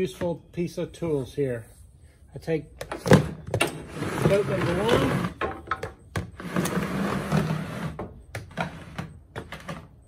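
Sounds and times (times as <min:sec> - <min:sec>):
plastic tote scraping: 0:03.0 - 0:10.0.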